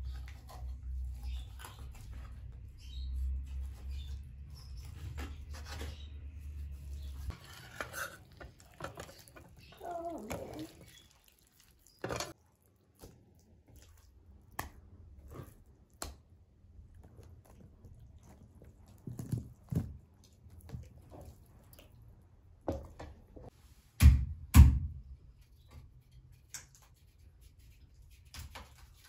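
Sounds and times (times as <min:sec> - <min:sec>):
hands working raw chicken: 0:00.0 - 0:23.5, 0:25.2 - 0:29.0.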